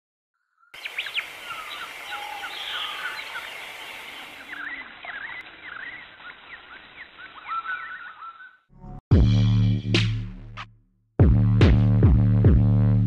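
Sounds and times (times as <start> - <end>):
birds chirping and whistling: 0.6 - 8.7
steady background hiss: 0.8 - 5.1.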